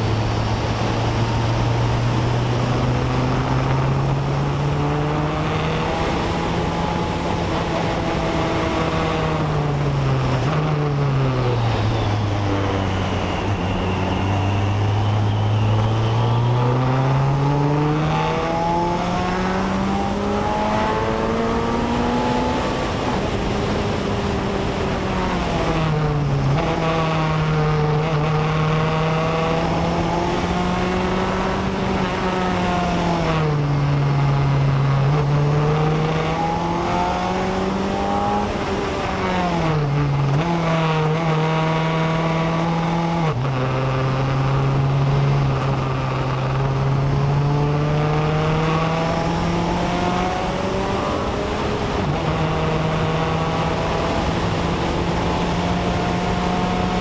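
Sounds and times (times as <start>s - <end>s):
race car engine accelerating: 0.0s - 57.0s.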